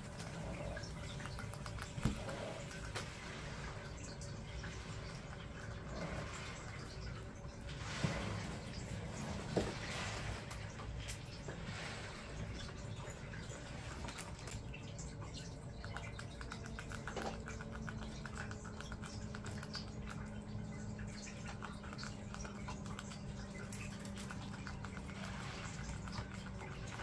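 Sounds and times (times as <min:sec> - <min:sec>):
rats scratching and nibbling: 0:00.0 - 0:27.0.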